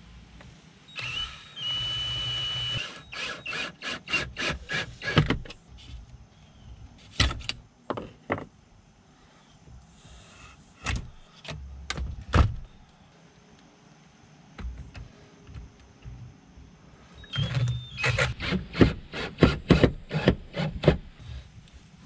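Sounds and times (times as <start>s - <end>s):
cordless drill motor: 1.0s - 5.2s.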